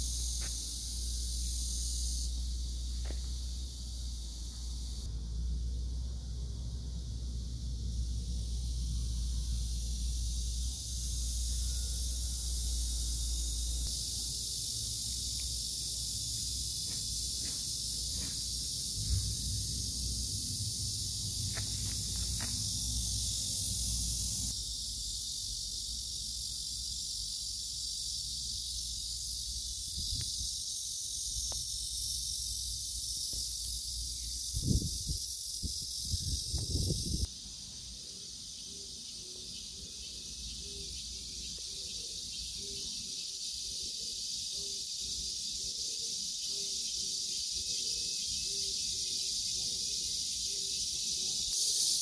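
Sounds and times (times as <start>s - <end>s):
cicadas singing: 0.0s - 52.0s
low rumble: 18.9s - 23.7s.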